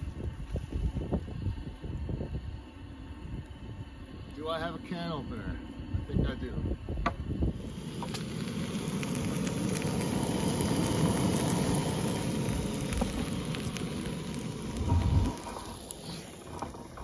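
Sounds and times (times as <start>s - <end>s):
food sizzling in a frying pan: 7.4s - 17.0s.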